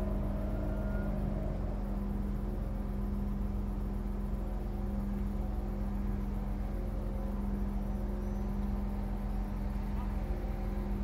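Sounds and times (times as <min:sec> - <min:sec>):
diesel train idling: 0:00.0 - 0:11.0.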